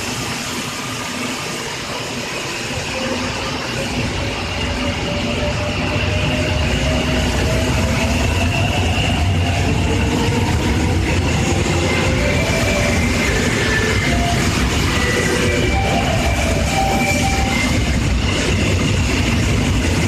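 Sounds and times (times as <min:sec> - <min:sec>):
electric train inverter whine: 0:00.0 - 0:20.0
wheels rumbling on rails: 0:00.0 - 0:20.0.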